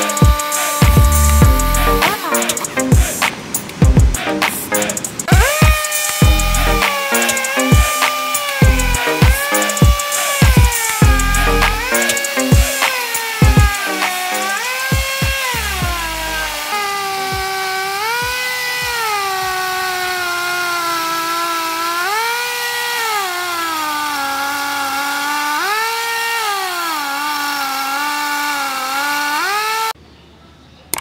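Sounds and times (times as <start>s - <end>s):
air hiss: 0.0s - 14.7s
air-powered chainsaw cutting log: 0.0s - 30.0s.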